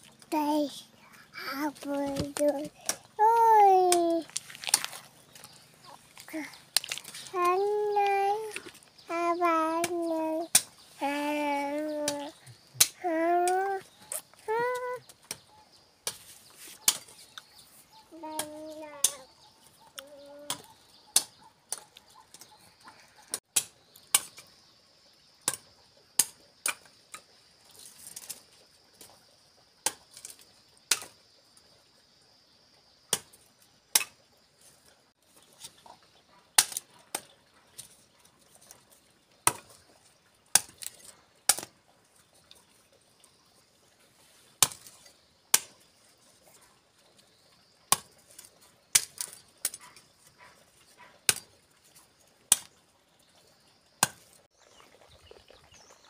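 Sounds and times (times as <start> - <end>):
machete chopping stems: 36.6 - 37.3, 39.4 - 39.7, 41.5 - 41.7, 44.6 - 45.8, 48.9 - 49.8, 54.0 - 54.3.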